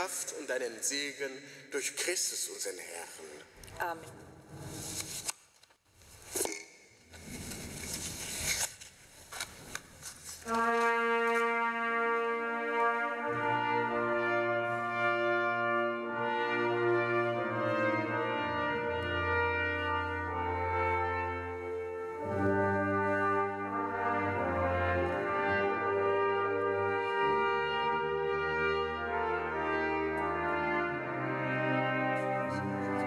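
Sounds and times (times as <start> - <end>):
brass ensemble playing chords: 10.5 - 33.0.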